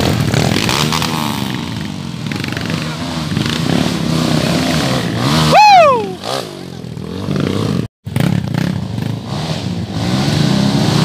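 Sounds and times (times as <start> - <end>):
dirt bike engine revving: 0.0 - 11.0
loud high shout: 5.5 - 6.2.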